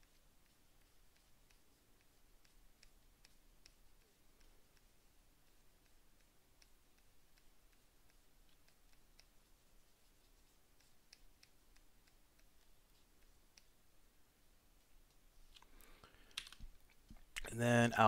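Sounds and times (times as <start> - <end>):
faint clicks: 0.0 - 13.9.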